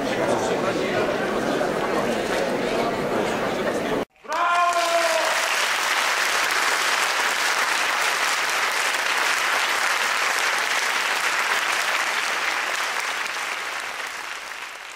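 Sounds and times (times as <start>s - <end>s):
crowd applauding: 4.2s - 14.9s.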